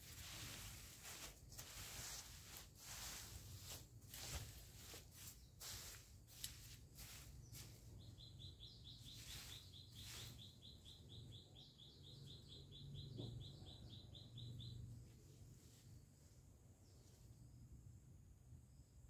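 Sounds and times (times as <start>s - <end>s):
leaves rustling: 0.0s - 10.9s
short high bird chirps: 7.4s - 14.9s.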